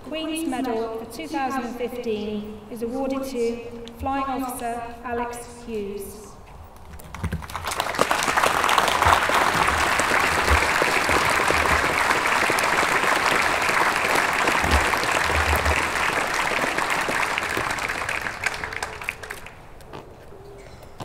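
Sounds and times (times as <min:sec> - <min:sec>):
crowd applauding: 0:07.0 - 0:19.7.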